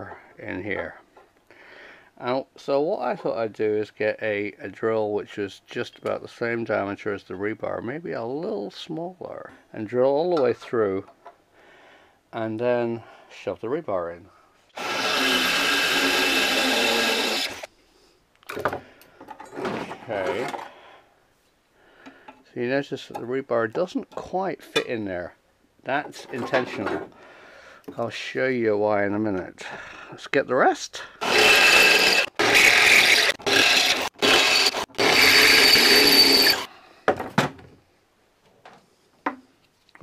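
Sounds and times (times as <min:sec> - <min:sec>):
cordless drill whining through steel: 0:14.8 - 0:17.7, 0:31.2 - 0:36.7.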